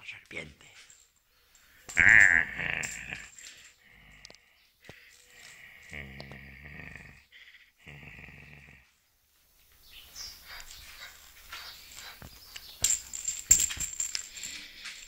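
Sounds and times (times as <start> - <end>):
dog scuffling and scraping: 10.3 - 14.0.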